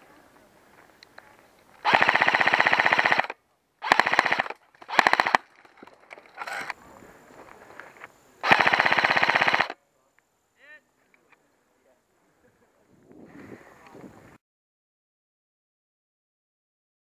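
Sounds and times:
airsoft rifle firing bursts: 1.8s - 5.5s, 8.4s - 9.8s.

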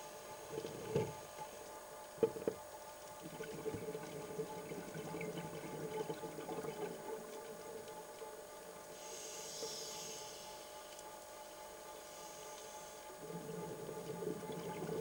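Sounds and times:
faint steady hum: 0.0s - 15.0s
water gurgling underwater: 3.2s - 7.8s, 13.2s - 15.0s.

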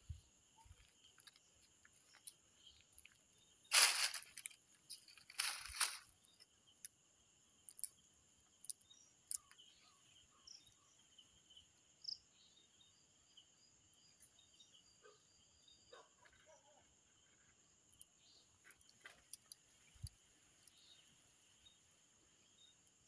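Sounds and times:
crickets chirring: 0.0s - 23.0s
rustling noise: 3.7s - 6.1s.

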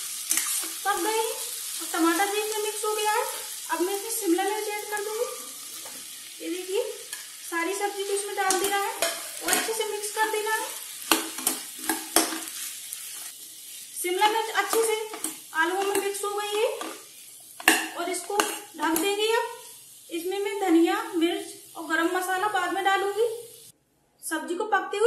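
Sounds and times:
faint frying sizzle: 0.0s - 23.7s
metal spoon scraping a pan: 0.2s - 0.8s, 8.0s - 10.4s.

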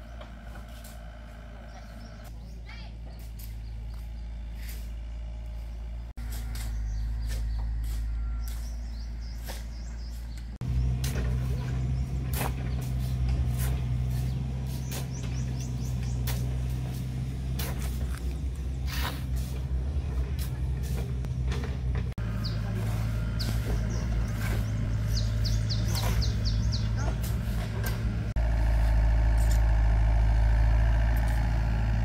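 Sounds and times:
motor engine running: 0.0s - 32.0s
shovels scraping gravel: 4.5s - 5.0s, 11.0s - 21.3s, 22.5s - 28.1s.

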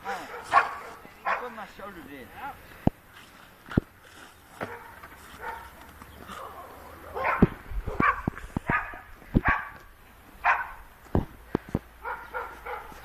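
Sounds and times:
small dog yipping: 7.2s - 9.8s.

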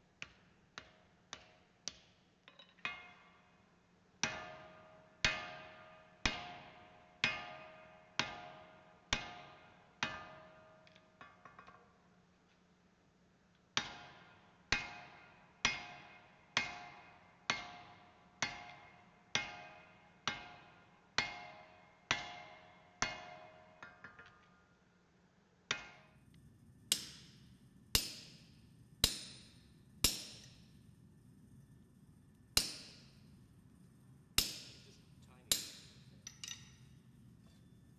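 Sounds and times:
hammer striking steel on anvil: 25.7s - 26.2s, 26.9s - 30.8s, 32.6s - 33.3s, 34.4s - 37.7s.

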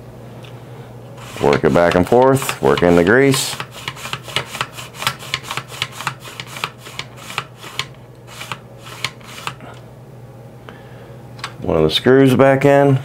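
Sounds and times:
plastic slide scraping and clicking: 1.2s - 9.8s.

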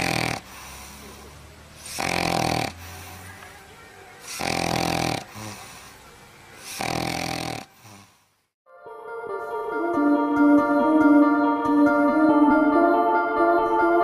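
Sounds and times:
dog snoring: 0.0s - 3.2s, 4.2s - 5.9s, 6.6s - 8.2s
dog breathing: 0.0s - 3.4s, 4.2s - 8.4s.

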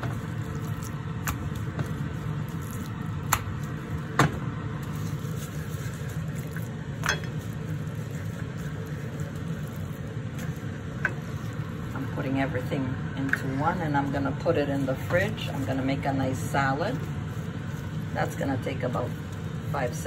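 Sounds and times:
wet squishing of hands on meat: 0.0s - 4.1s, 4.7s - 12.0s, 16.8s - 18.2s
steady low hum: 0.0s - 20.0s.

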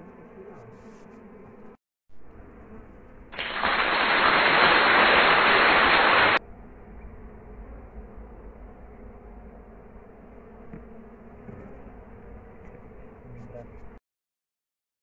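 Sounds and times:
bees buzzing: 2.4s - 6.4s
loud even hiss: 3.4s - 6.4s.

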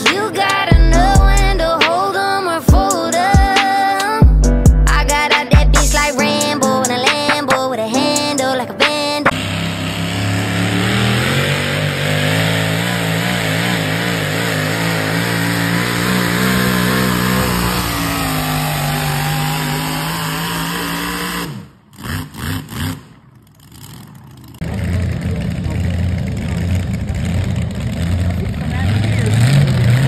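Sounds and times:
truck engine revving hard: 0.0s - 1.8s, 9.3s - 30.0s.

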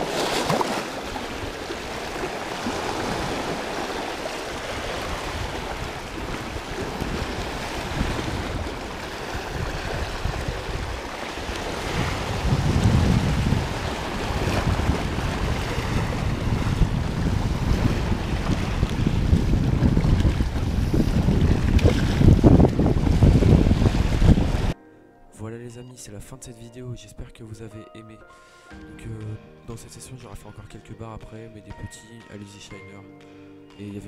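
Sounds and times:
waves splashing over rocks: 0.0s - 24.8s
wind buffeting microphone: 0.0s - 24.8s.

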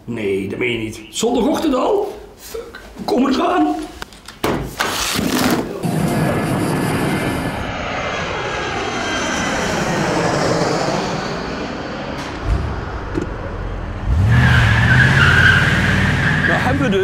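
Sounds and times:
jet airplane passing overhead: 5.3s - 17.0s.

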